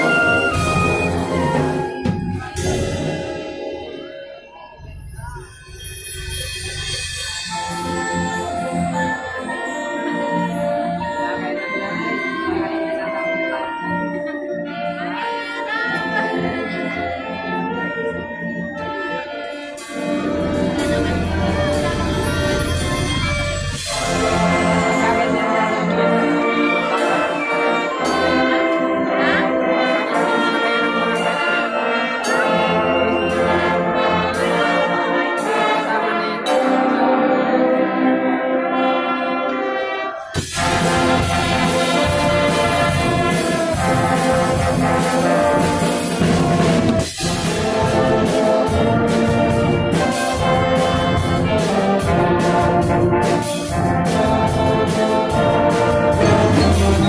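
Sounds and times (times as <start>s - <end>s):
marching band brass playing: 0.0s - 4.2s, 7.7s - 57.0s
steady heavy beat: 56.1s - 57.0s.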